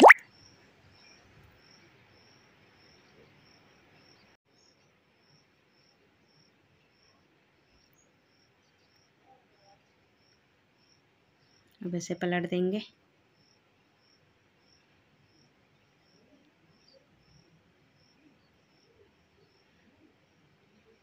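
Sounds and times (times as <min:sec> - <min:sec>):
high-pitched chirp: 0:00.0 - 0:00.2.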